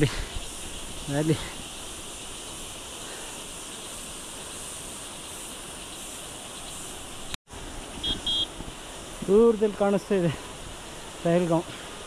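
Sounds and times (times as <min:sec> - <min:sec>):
insects chorus: 0:00.0 - 0:12.0.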